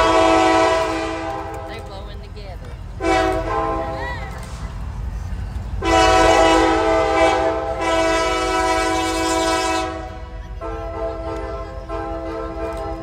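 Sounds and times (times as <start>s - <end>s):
locomotive air horn chord: 0.0s - 1.8s, 3.0s - 4.0s, 5.8s - 13.0s.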